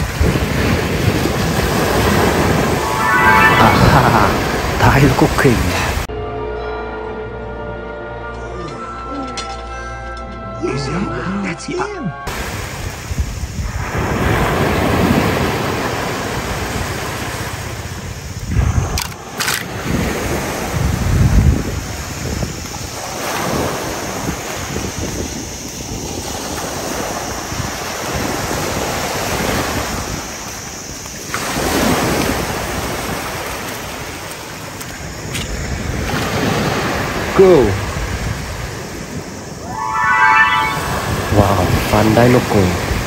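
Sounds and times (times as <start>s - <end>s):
wind rumble on microphone: 0.0s - 2.9s, 12.3s - 30.4s
waves washing on sandy shore: 0.0s - 6.1s, 12.3s - 39.3s.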